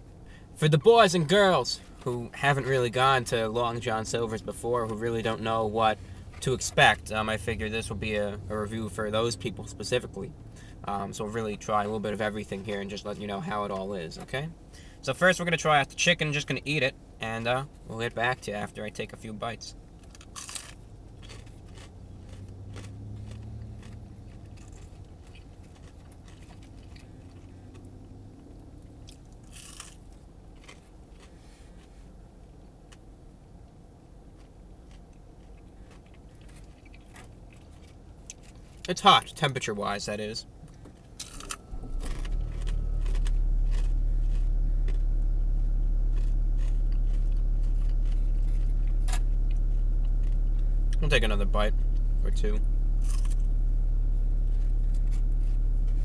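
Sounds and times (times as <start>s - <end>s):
low steady rumble: 0.0s - 56.0s
crunching fried coating: 20.0s - 31.9s, 34.4s - 39.4s, 41.2s - 51.2s
person chewing fried chicken: 20.0s - 32.2s, 34.3s - 38.9s, 41.0s - 51.0s, 53.0s - 53.5s.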